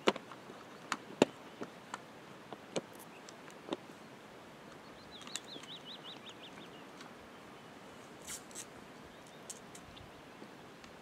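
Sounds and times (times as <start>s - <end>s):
small bird whistling song: 4.8s - 6.9s.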